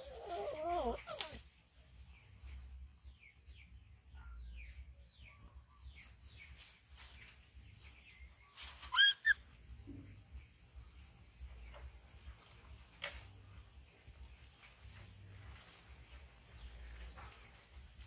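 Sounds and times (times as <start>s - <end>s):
young animal squealing: 0.0s - 1.4s, 8.9s - 9.4s
bird chirping: 3.1s - 12.7s.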